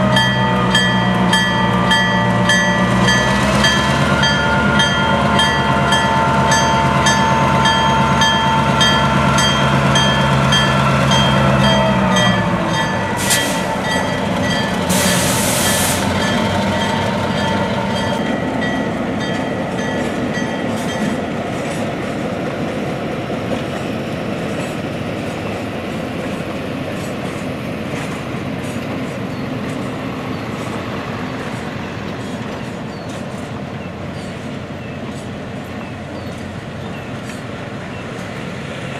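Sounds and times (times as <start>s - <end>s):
locomotive bell ringing: 0.0s - 21.4s
diesel locomotive engine drone: 0.0s - 38.9s
wheels rumbling on rail: 0.0s - 38.9s
air hissing: 13.2s - 13.8s, 14.9s - 16.2s.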